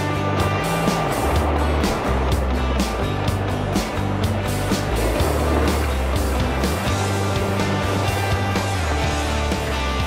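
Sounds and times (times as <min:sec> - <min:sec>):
music with steady beat and bass: 0:00.0 - 0:10.0.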